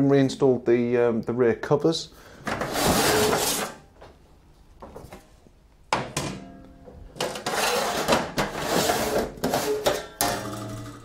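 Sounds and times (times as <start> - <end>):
sheet metal scraping and rattling: 2.5 - 3.9, 6.4 - 11.0.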